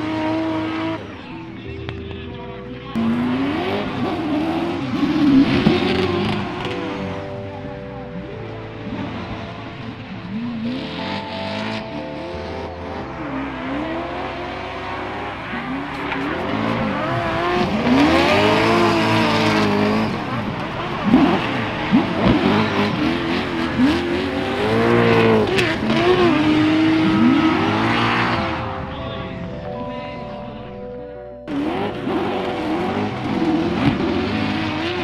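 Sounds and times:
car engines revving: 0:00.0 - 0:35.0.

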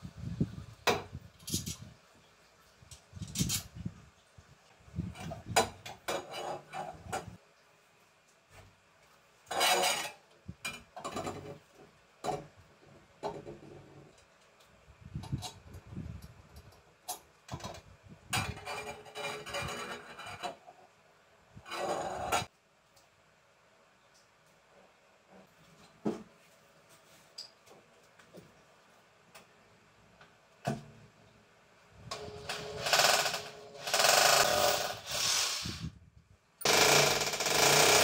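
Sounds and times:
metal parts scraping and rubbing: 0:01.4 - 0:01.9, 0:03.2 - 0:03.7, 0:09.5 - 0:10.2.

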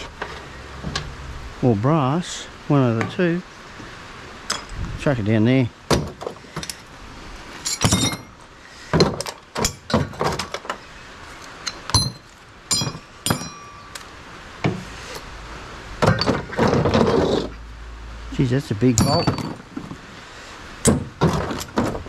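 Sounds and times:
scrap metal pieces clinking: 0:07.6 - 0:08.4, 0:11.6 - 0:14.1, 0:16.0 - 0:17.5, 0:18.9 - 0:19.8.

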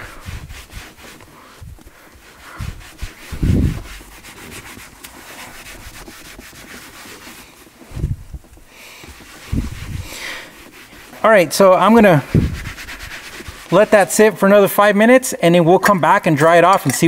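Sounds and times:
cloth scrubbing leather: 0:00.0 - 0:14.4
dull low thump: 0:07.9 - 0:08.6.

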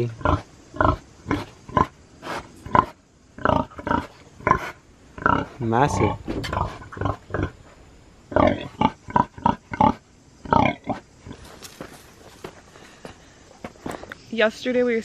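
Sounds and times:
pig grunting: 0:00.0 - 0:07.6, 0:08.3 - 0:11.6.

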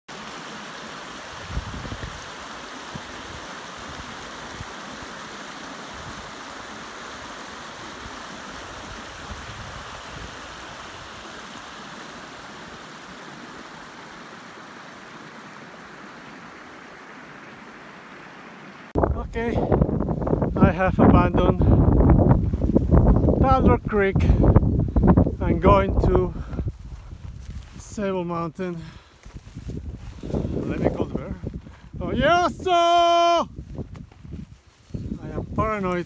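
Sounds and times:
creek rushing over rocks: 0:00.1 - 0:19.1.

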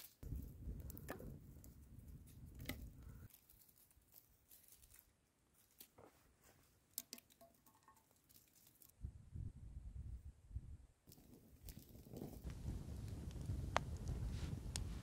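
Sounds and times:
campfire crackling: 0:00.0 - 0:06.0, 0:11.1 - 0:15.0
pine cones and twigs handled: 0:00.0 - 0:09.0, 0:11.1 - 0:14.9.

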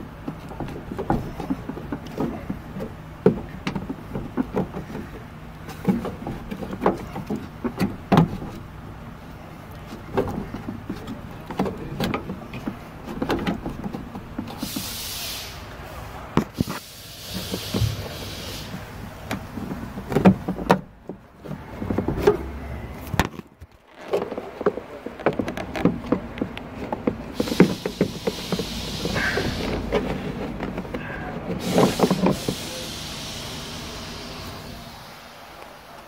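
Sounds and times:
short hiss: 0:14.6 - 0:16.0, 0:16.6 - 0:18.8, 0:31.6 - 0:35.4
hard plastic clicks and scrapes: 0:18.7 - 0:32.6.

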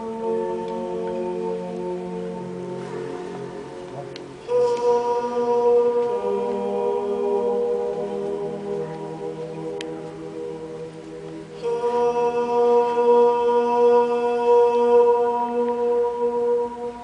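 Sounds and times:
man singing long held notes: 0:04.3 - 0:10.8, 0:11.4 - 0:17.0.

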